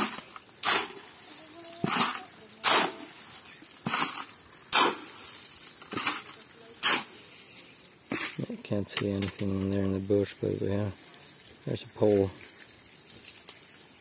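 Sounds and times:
tool scraping sand and cement: 0.0 - 8.6.

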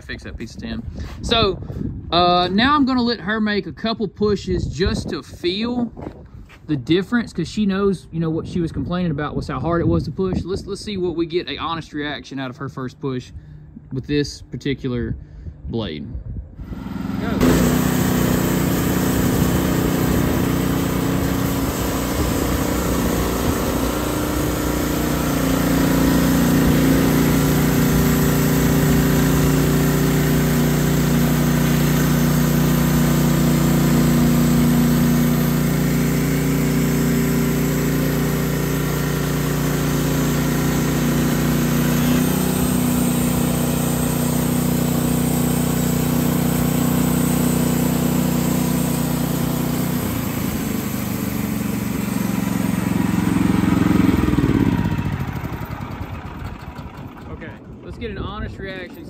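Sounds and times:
band saw blade cutting log: 16.6 - 54.9
sawmill engine running: 16.6 - 59.0.

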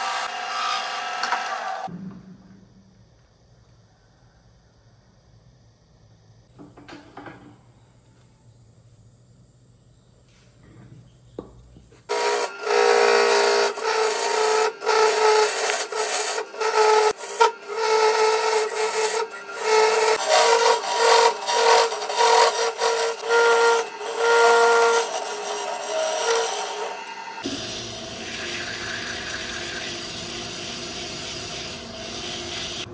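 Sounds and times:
lathe tool scraping wood: 12.1 - 32.9.

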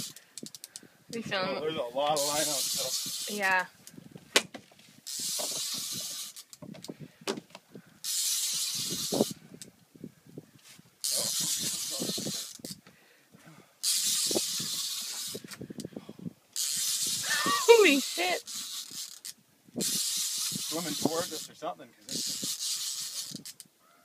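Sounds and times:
fishing reel hissing: 0.0 - 0.8, 2.1 - 3.7, 5.0 - 6.6, 8.0 - 9.4, 11.0 - 12.8, 13.8 - 15.9, 16.6 - 23.7
small clicks and knocks: 0.0 - 0.8.

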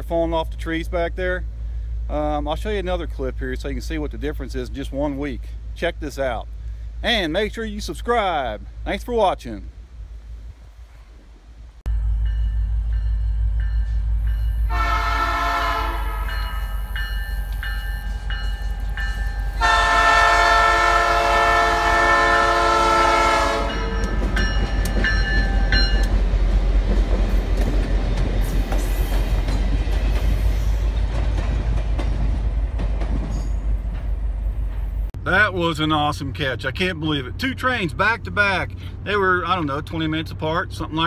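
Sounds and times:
freight train rumbling over rails: 0.0 - 41.0
locomotive air horn blasts: 14.6 - 16.9, 19.6 - 24.1.

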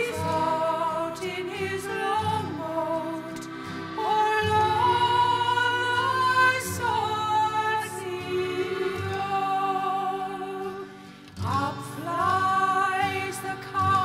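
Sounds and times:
person singing gliding notes: 0.0 - 14.0.

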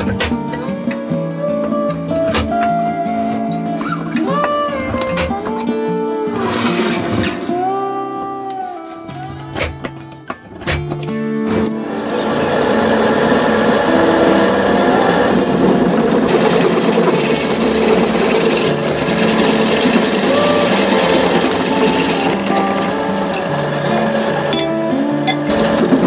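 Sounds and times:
drill press drilling into steel: 11.5 - 26.0.

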